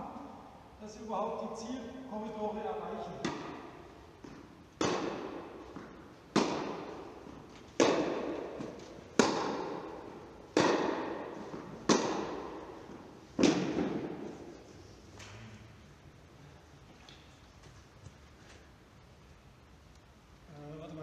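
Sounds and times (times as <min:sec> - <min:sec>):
tennis ball hits echoing: 0:03.1 - 0:14.6.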